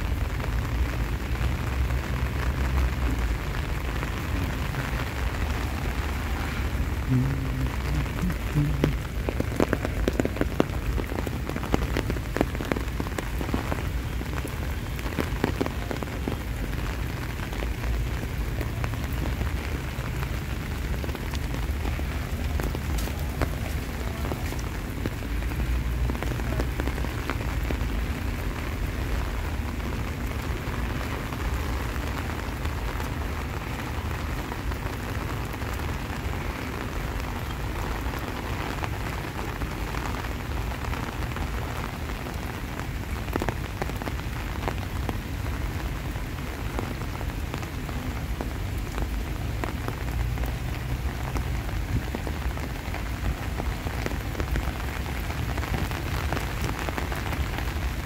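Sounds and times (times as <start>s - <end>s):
rain pattering: 0.0s - 58.0s.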